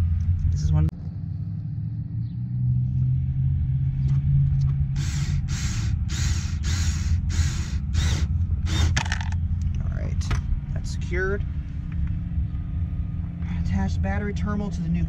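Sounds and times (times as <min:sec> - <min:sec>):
rasping bursts: 0:04.9 - 0:09.2
cordless screwdriver motor whirring: 0:05.0 - 0:09.4.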